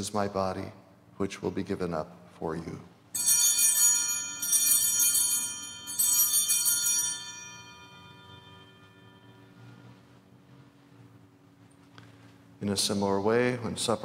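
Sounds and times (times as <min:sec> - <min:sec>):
small hand bells ringing: 0:03.1 - 0:09.6.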